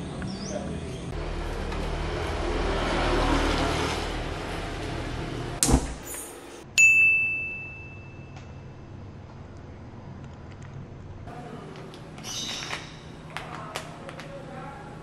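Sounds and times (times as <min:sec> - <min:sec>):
bright chime: 0:06.8 - 0:08.7.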